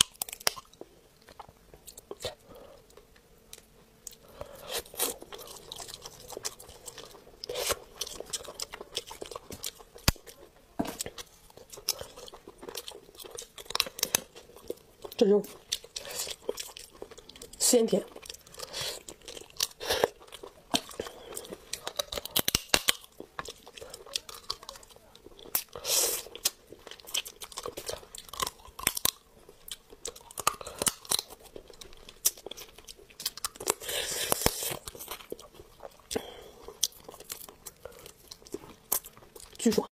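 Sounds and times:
crab shell cracking: 0.0s - 0.8s, 18.3s - 25.8s, 26.4s - 39.1s
chewing: 0.0s - 39.9s.

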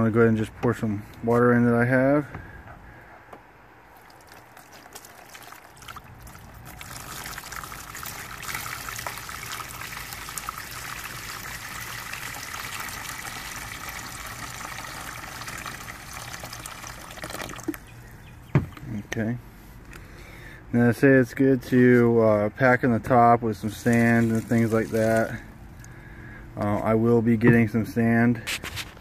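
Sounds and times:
water pouring into plastic bin: 4.0s - 17.8s, 23.7s - 25.4s.

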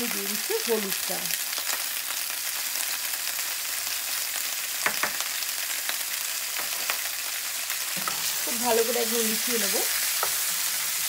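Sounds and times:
tomatoes sizzling in oil: 0.0s - 11.0s.

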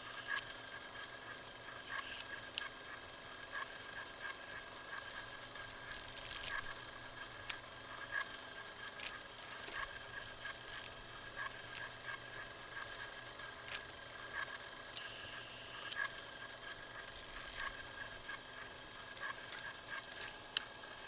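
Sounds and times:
clicks and crackles: 5.6s - 7.6s, 8.9s - 12.2s, 13.6s - 14.5s, 17.0s - 20.8s.

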